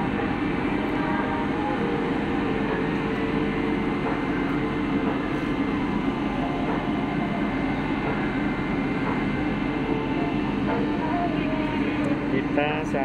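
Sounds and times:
ship engines droning: 0.0 - 13.0.

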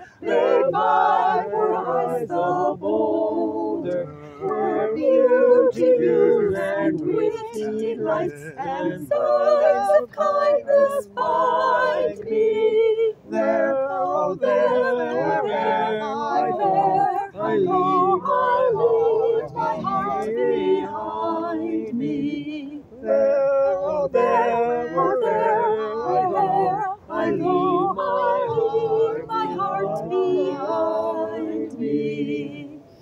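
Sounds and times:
choir singing in harmony: 0.0 - 33.0.

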